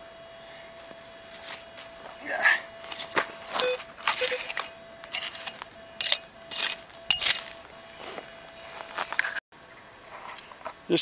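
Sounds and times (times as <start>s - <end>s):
metal detector beeps: 2.1s - 9.0s
pick striking rocky soil: 4.0s - 7.6s.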